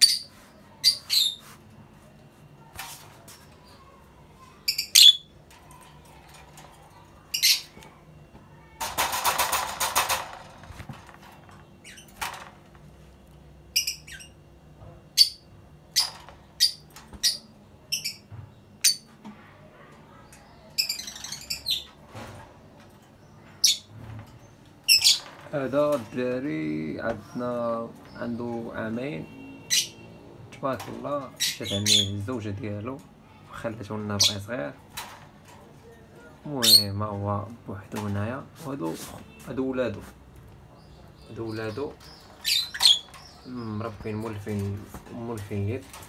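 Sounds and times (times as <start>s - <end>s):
lovebird chirps and squawks: 0.0s - 1.4s, 4.7s - 5.3s, 7.3s - 7.8s, 20.8s - 21.9s, 24.9s - 25.2s, 29.6s - 30.0s, 31.4s - 32.1s, 42.1s - 43.4s.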